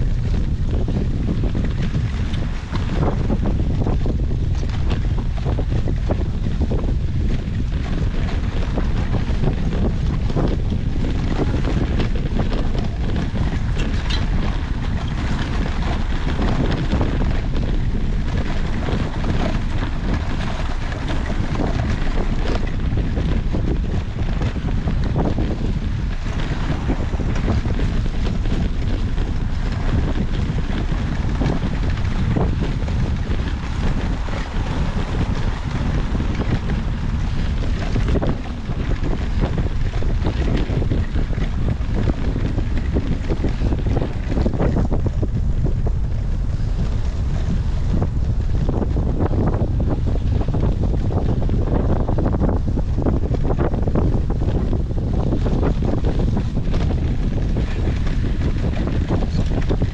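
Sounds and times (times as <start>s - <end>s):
wind buffeting microphone: 0.0s - 59.9s
small clicks and rattles: 6.5s - 45.2s.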